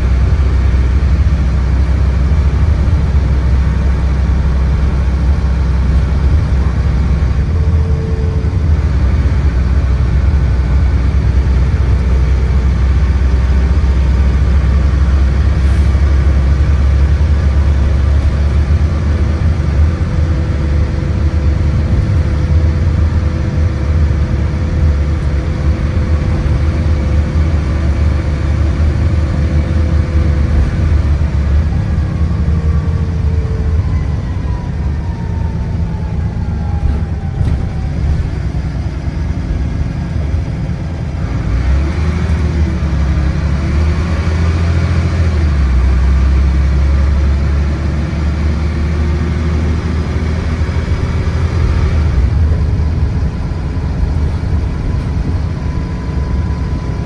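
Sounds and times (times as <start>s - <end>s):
bus engine rumble: 0.0s - 57.0s
road noise: 0.0s - 57.0s
gearbox whine: 51.9s - 57.0s.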